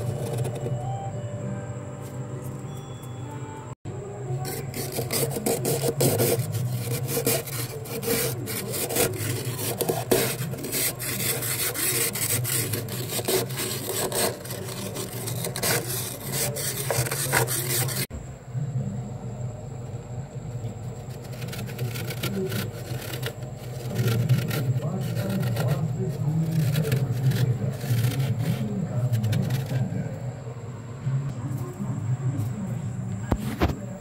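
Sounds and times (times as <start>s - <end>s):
fingers scraping frost: 0.0s - 0.9s, 4.3s - 18.1s, 20.9s - 30.2s.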